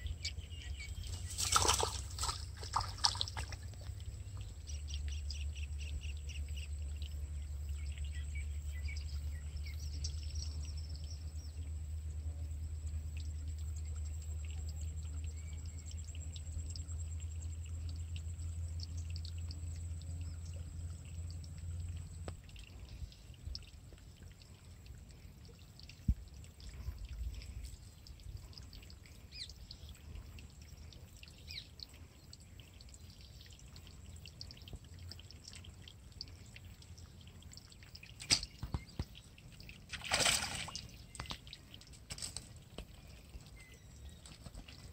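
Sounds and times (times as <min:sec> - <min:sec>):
faint bird chirps: 0:42.9 - 0:44.9.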